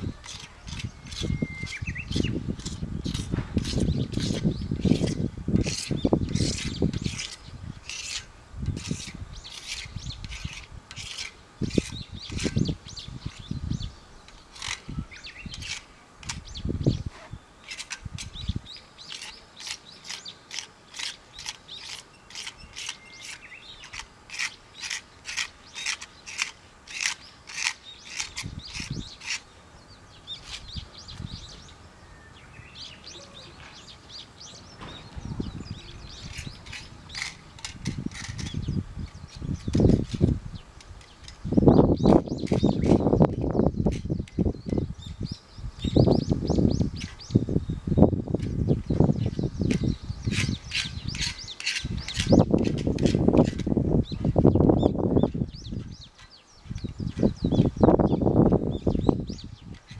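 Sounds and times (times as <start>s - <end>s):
tool scraping metal frame: 0.1s - 13.5s, 19.1s - 29.4s, 36.0s - 38.8s, 49.6s - 54.4s.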